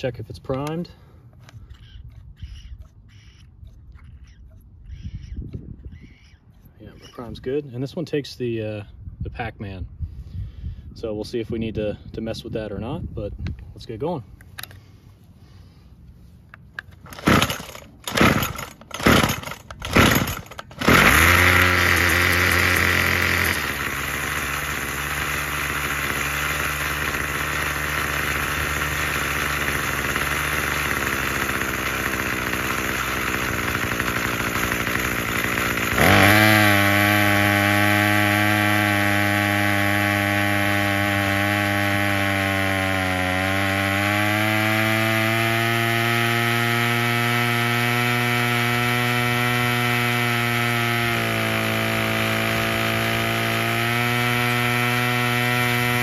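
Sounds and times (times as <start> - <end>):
string trimmer engine running: 0.0 - 7.6, 14.3 - 56.0
starter rope pulls: 16.5 - 56.0.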